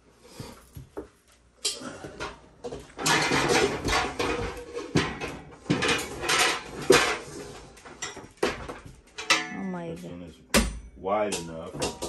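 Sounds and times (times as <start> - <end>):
metal pots and pans clattering: 1.6 - 9.5, 10.5 - 12.0.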